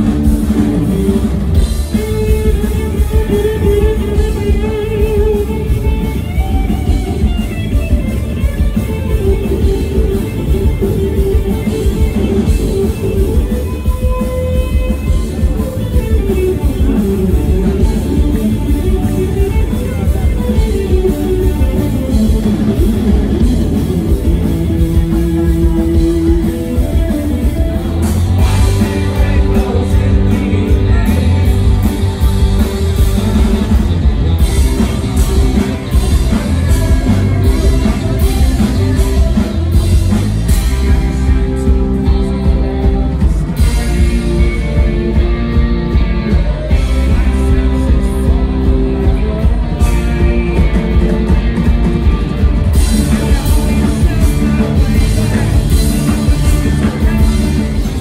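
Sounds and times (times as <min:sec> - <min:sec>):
bass guitar: 0:00.0 - 0:58.0
drum kit and cymbals: 0:00.0 - 0:58.0
electric guitars: 0:00.0 - 0:58.0
person singing: 0:24.3 - 0:33.6, 0:35.1 - 0:51.7, 0:52.7 - 0:58.0.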